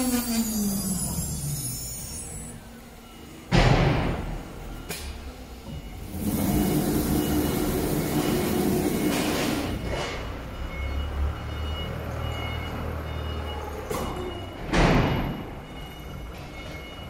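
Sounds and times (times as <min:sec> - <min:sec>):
router machine hissing whir: 0:00.0 - 0:02.6.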